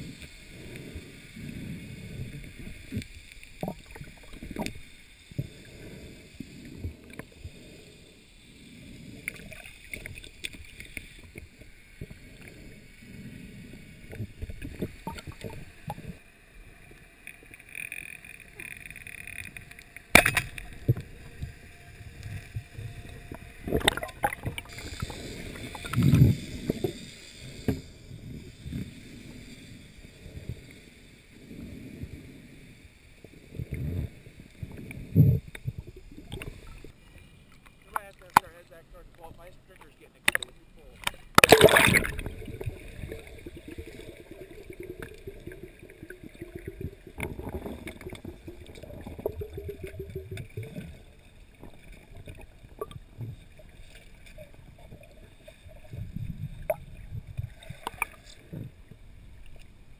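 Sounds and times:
muffled underwater water movement: 0:00.0 - 0:59.9
sharp crack: 0:20.0 - 0:20.8.

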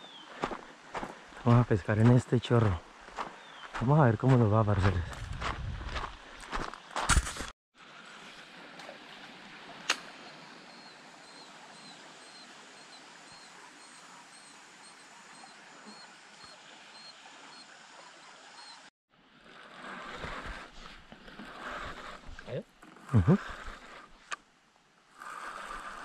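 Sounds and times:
flowing river water: 0:07.8 - 0:26.0.

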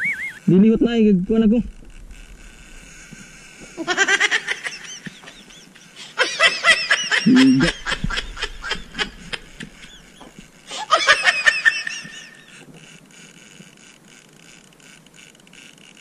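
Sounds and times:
high-pitched laughter: 0:03.8 - 0:12.6.

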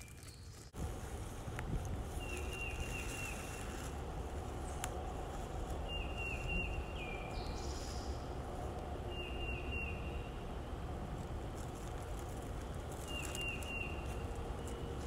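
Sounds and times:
songbird singing: 0:00.0 - 0:00.8, 0:01.6 - 0:10.8, 0:12.6 - 0:15.0.

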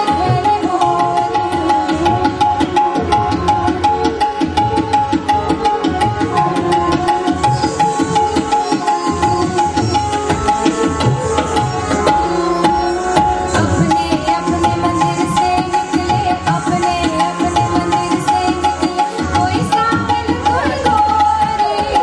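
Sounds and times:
held melody notes: 0:00.0 - 0:21.2
tabla playing quick rhythm: 0:00.0 - 0:22.0.

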